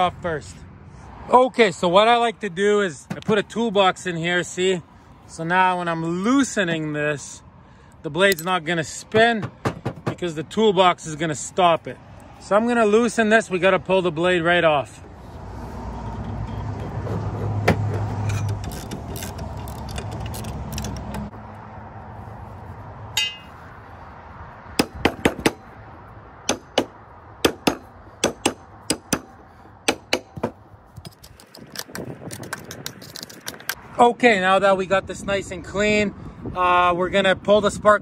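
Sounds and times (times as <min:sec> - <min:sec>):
metal clicks and scrapes: 0:16.2 - 0:21.3, 0:31.0 - 0:33.8.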